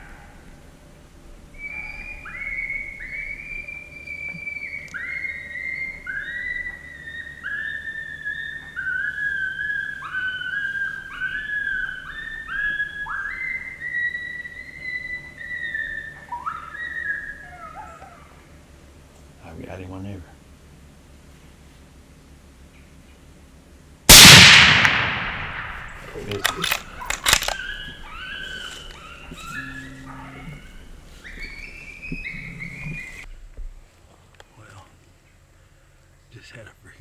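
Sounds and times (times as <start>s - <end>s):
coyotes howling: 0.0s - 0.8s, 1.5s - 18.6s, 24.9s - 33.3s.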